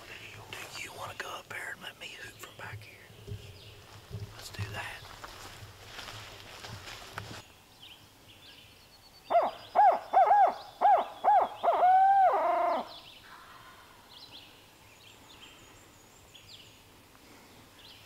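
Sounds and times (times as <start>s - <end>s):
owl hooting call: 9.3s - 13.4s.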